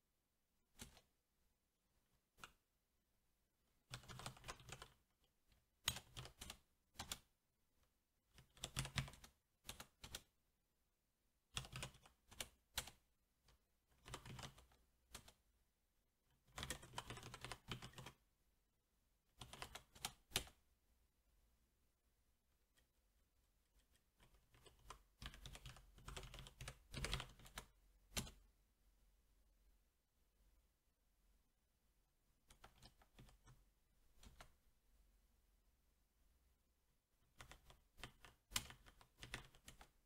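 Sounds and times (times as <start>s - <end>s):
mechanical keyboard typing: 3.9s - 5.0s, 5.8s - 7.3s, 8.4s - 10.3s, 11.5s - 13.0s, 14.0s - 15.4s, 16.4s - 18.2s, 19.4s - 20.6s, 24.2s - 28.4s, 32.5s - 33.6s, 37.3s - 39.9s.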